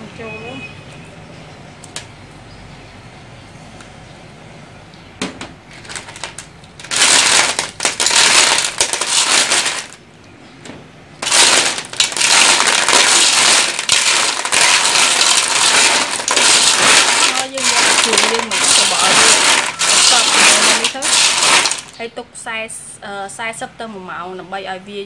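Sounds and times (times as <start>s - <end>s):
clam shells clattering in pot: 5.8s - 10.0s, 11.2s - 22.0s.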